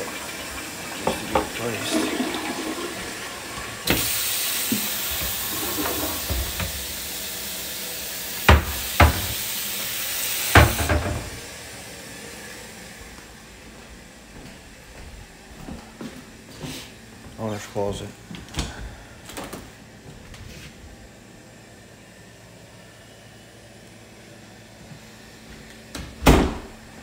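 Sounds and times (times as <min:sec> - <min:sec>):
toilet tank refilling hiss: 0:00.0 - 0:12.5
cabinet doors knocking: 0:08.5 - 0:09.4, 0:10.6 - 0:11.3.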